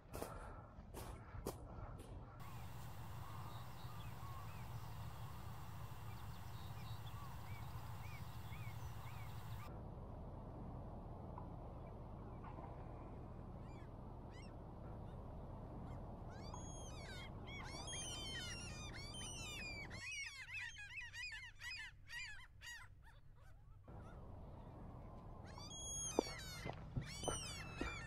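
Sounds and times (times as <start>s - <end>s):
flock of birds calling: 2.4s - 9.7s.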